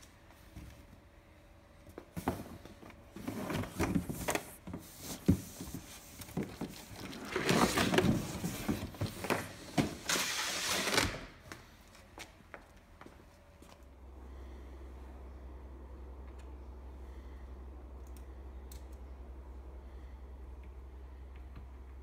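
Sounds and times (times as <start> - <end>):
cardboard box scraping and rustling: 5.2 - 10.9.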